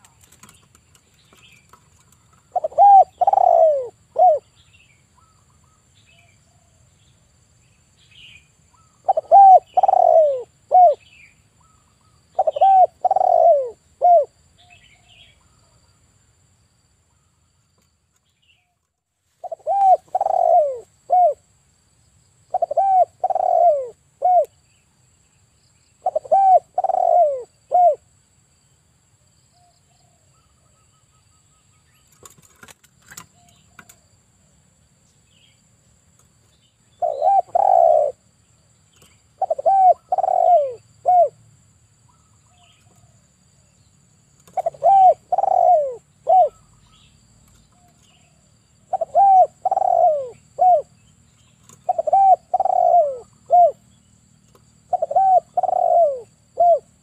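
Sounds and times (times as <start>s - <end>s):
dove cooing: 2.3s - 4.6s, 8.8s - 14.4s, 19.4s - 21.4s, 22.5s - 24.6s, 26.0s - 28.1s, 37.0s - 38.2s, 39.0s - 41.4s, 44.4s - 47.0s, 47.8s - 51.0s, 51.6s - 53.8s, 54.9s - 57.0s.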